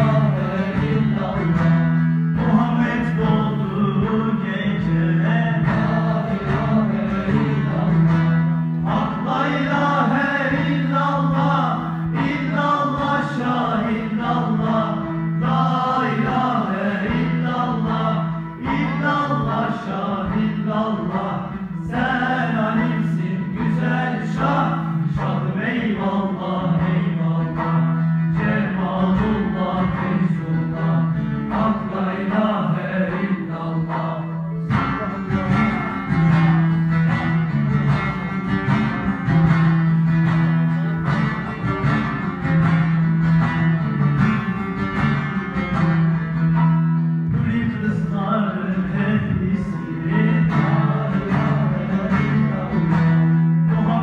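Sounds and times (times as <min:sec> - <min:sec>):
voices singing devotional song: 0:00.0 - 0:36.2, 0:47.4 - 0:54.0
plucked strings: 0:00.0 - 0:54.0.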